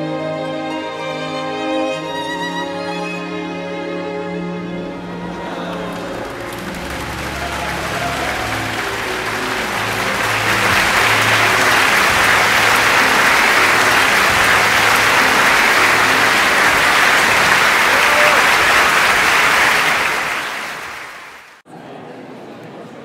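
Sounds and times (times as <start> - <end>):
low orchestral notes: 0.0 - 20.9
audience applauding: 5.5 - 21.6.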